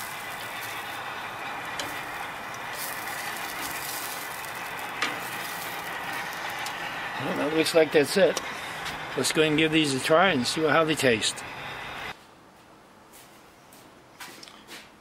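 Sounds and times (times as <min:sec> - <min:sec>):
vegetables sizzling on a grill: 0:00.0 - 0:09.6.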